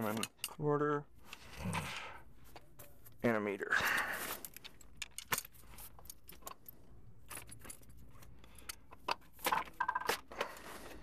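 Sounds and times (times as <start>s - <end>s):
tools rattling in a bag: 4.0s - 10.8s.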